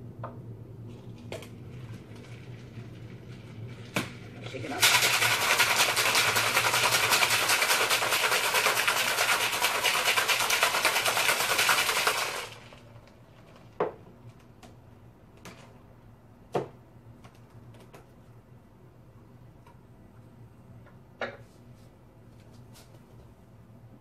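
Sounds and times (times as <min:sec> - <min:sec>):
ice rattling in cocktail shaker: 0:01.8 - 0:12.8.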